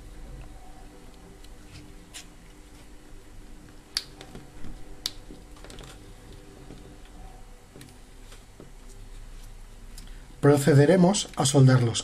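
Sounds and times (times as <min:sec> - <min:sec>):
faint steady hum: 0:00.0 - 0:12.0
wires rustling and tapping: 0:03.6 - 0:10.1.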